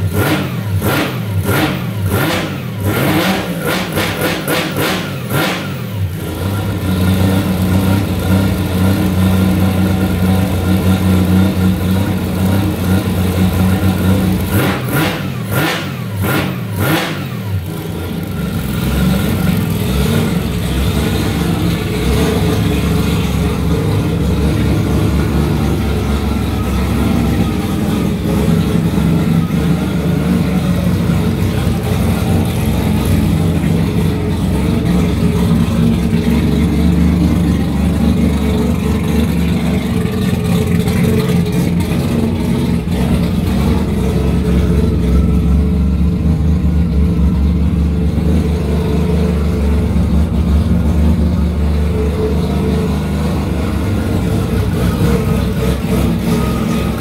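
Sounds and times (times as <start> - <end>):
rotary engine idling: 17.4 - 57.0.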